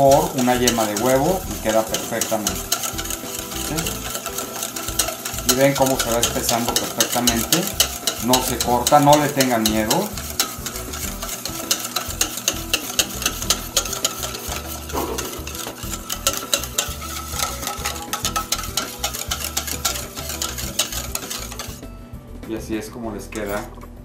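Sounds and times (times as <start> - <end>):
whisk clicking in metal bowl: 0.0 - 21.8.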